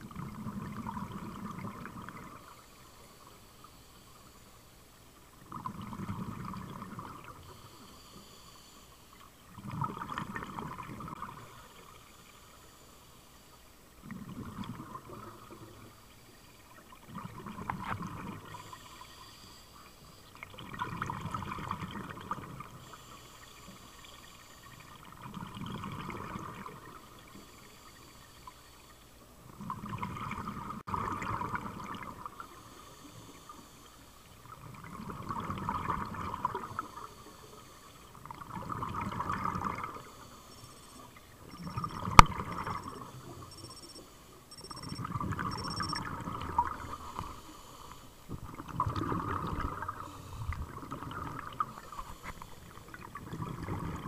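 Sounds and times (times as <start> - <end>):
underwater regulator bubbles: 5.4 - 7.5, 9.5 - 11.7, 34.4 - 37.1, 38.1 - 43.8, 44.5 - 47.5, 48.3 - 54.0.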